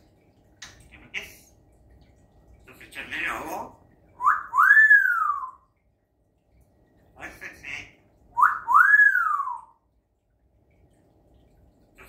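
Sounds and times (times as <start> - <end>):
parrot mumbled chatter: 0.9 - 1.6, 7.2 - 8.0
parrot whistling: 4.2 - 5.7, 8.4 - 9.8.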